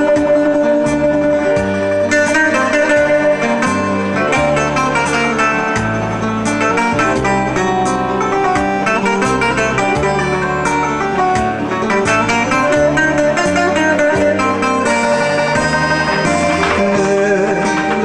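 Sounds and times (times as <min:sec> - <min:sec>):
bouzouki plucked melody: 0:00.0 - 0:18.0
steady bass accompaniment: 0:00.0 - 0:18.0
person singing: 0:16.1 - 0:18.0.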